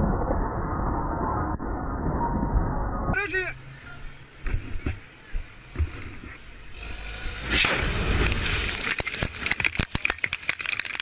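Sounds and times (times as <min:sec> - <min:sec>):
debris and gravel raining down: 0:08.0 - 0:11.0.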